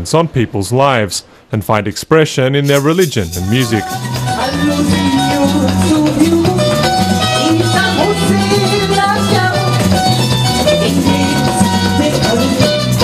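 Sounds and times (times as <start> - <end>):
bass line: 2.6 - 13.0
conga drums: 2.6 - 13.0
strummed cuatros: 2.6 - 13.0
woman singing: 3.4 - 13.0.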